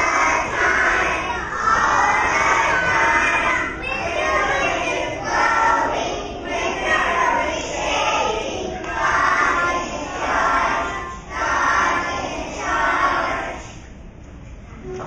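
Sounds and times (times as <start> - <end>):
young children singing: 0.0 - 13.9.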